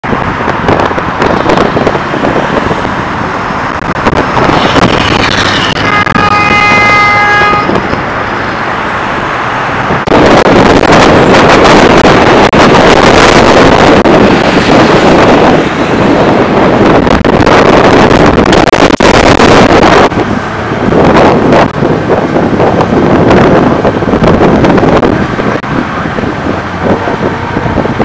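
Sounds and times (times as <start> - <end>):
road traffic: 0.0 - 28.0
wind buffeting microphone: 0.0 - 28.0
vehicle horn honk: 4.6 - 7.8.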